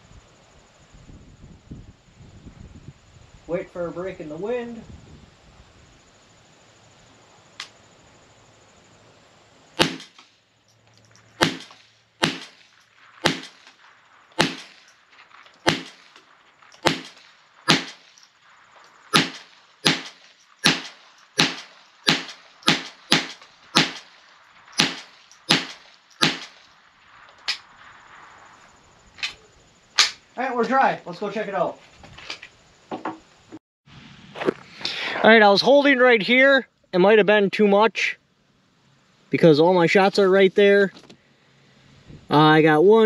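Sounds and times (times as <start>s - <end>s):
rifle shots: 9.8s - 10.3s, 11.4s - 13.8s, 14.4s - 14.9s, 15.6s - 18.2s, 19.1s - 26.6s.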